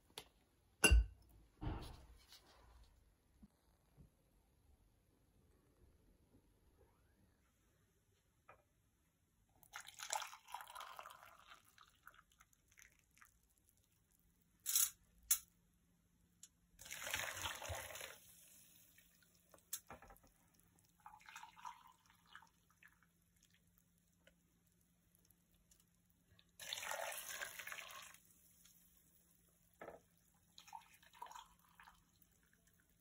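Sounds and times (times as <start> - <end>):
water splashing into a pot: 9.6 - 13.6, 16.8 - 24.0, 26.4 - 33.0.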